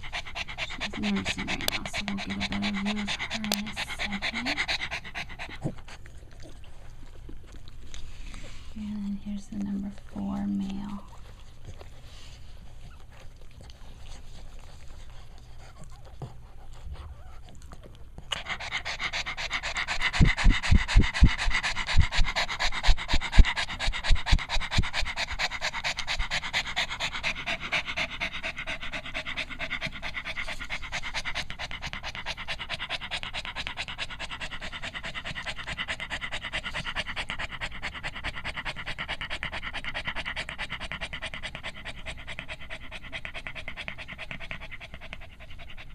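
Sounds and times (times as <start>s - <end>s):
dog panting rapidly: 0.0s - 45.9s.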